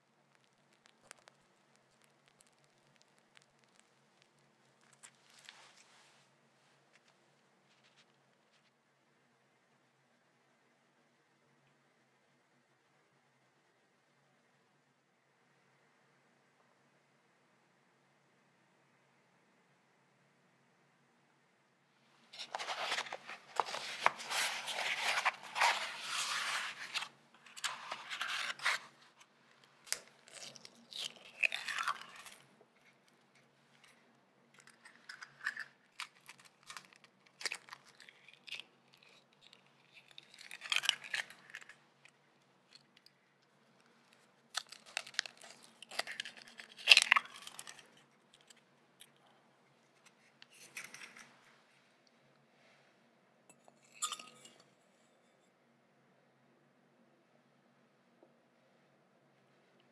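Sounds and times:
eggshells cracking: 0:00.4 - 0:05.4, 0:29.8 - 0:32.5, 0:34.6 - 0:41.8, 0:44.4 - 0:49.2
paper egg carton rustling: 0:22.3 - 0:32.4.

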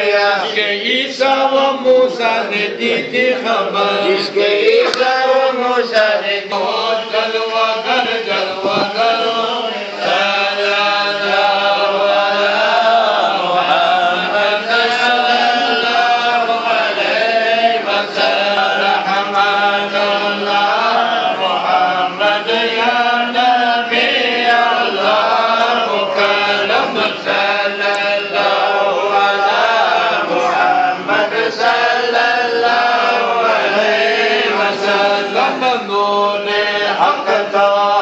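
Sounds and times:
men chanting together: 0:00.0 - 0:38.0.

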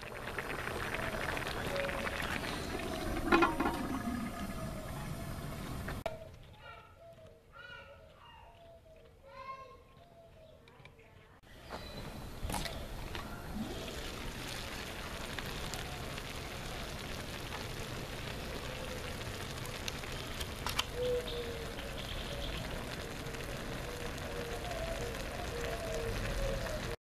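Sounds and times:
broth simmering and bubbling: 0:00.0 - 0:06.1, 0:12.1 - 0:27.0.

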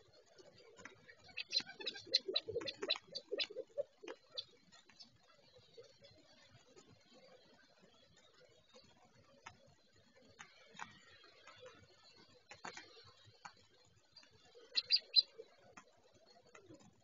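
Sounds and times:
faint ticks and clicks: 0:00.0 - 0:17.0
quail chirping: 0:00.8 - 0:05.1, 0:14.5 - 0:15.5.

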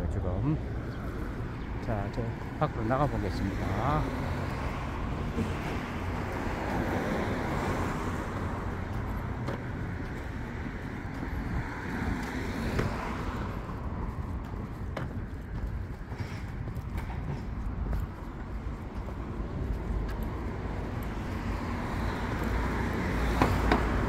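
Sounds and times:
cars going by: 0:00.0 - 0:24.0.

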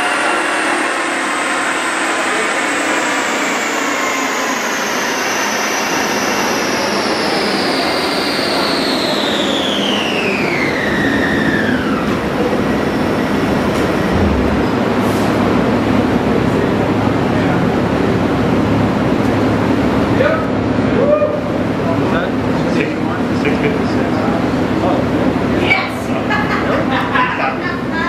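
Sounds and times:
high whine falling in pitch: 0:00.0 - 0:17.4
tires and rollers rumbling: 0:10.1 - 0:20.8.

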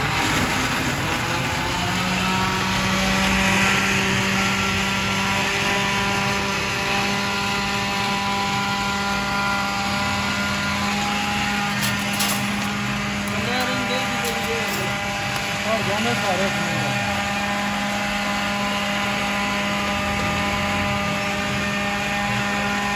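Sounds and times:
motor running steadily: 0:00.0 - 0:22.9.

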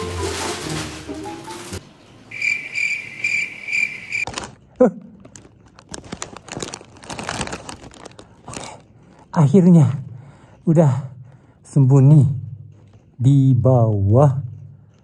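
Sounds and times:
plastic snack packets crinkling: 0:00.0 - 0:01.8, 0:03.8 - 0:09.6
cricket chirping: 0:02.3 - 0:04.3.

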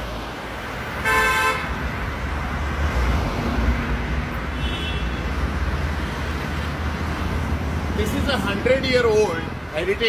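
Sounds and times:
street traffic rumble: 0:00.0 - 0:10.0
car horn honking: 0:01.0 - 0:01.7, 0:04.6 - 0:05.3.

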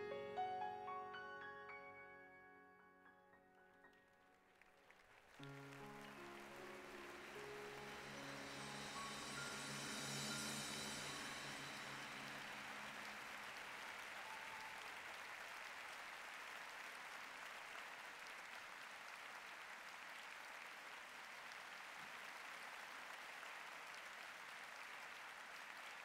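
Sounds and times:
faint steady rushing noise: 0:06.4 - 0:14.5.

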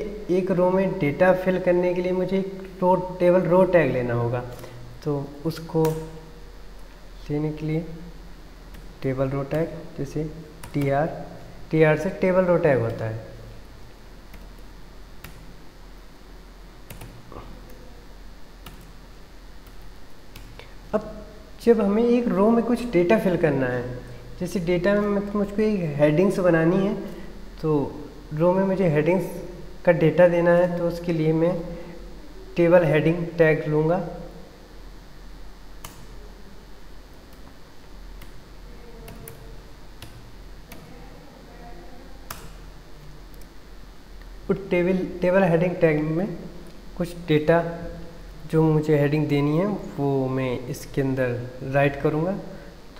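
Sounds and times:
faint low hum: 0:00.0 - 0:52.9
computer keyboard keystrokes: 0:10.6 - 0:10.9, 0:14.3 - 0:15.5, 0:16.9 - 0:17.3, 0:18.6 - 0:19.0, 0:19.6 - 0:20.6, 0:42.3 - 0:42.6
keyboard keystrokes: 0:16.9 - 0:17.2.

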